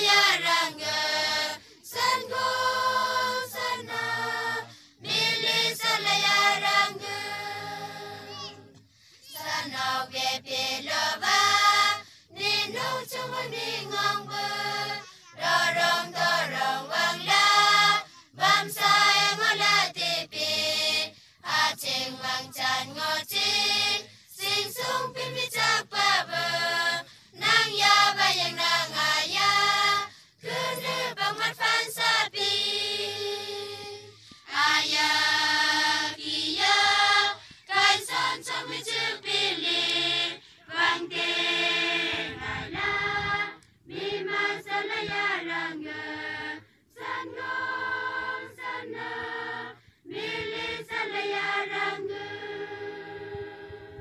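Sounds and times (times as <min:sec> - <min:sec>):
children's choir singing: 0:00.0 - 0:54.0.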